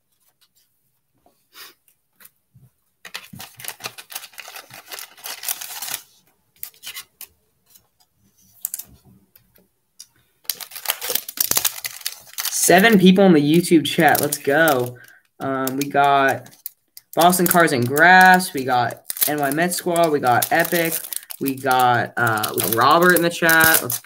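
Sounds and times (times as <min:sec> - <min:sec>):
paper and foil crinkling: 0:03.0 - 0:08.0, 0:08.6 - 0:09.0, 0:10.4 - 0:24.0
cards clicking: 0:13.9 - 0:24.0.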